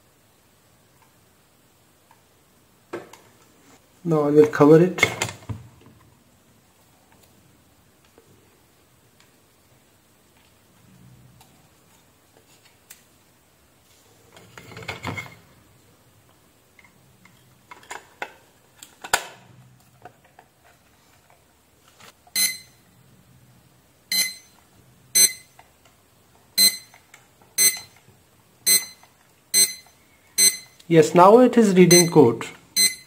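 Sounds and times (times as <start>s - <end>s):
plastic clicks and rustles: 16.8s - 22.2s
barcode scanner beeps: 22.4s - 22.8s, 24.1s - 24.6s, 25.2s - 25.6s, 26.6s - 27.0s, 27.6s - 28.0s, 28.7s - 30.8s, 31.9s - 33.0s.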